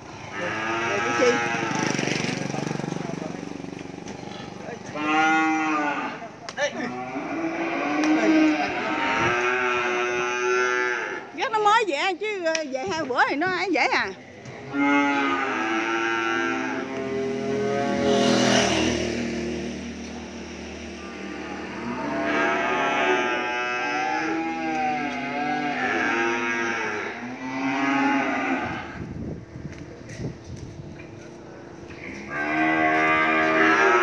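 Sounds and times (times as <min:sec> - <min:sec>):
cattle mooing: 0:00.2 - 0:02.0, 0:04.3 - 0:11.4, 0:14.5 - 0:18.8, 0:21.0 - 0:29.0, 0:31.9 - 0:34.0.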